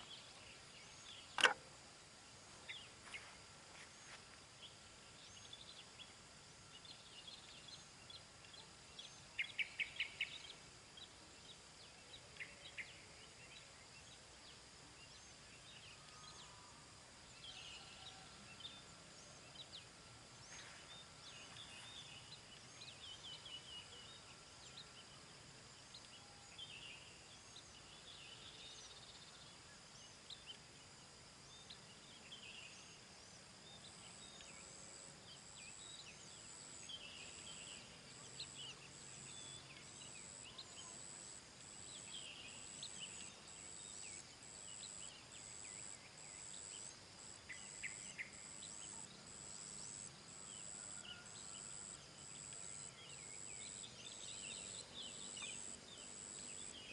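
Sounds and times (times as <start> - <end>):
small birds chirping: 0.0 - 16.6, 17.3 - 30.8.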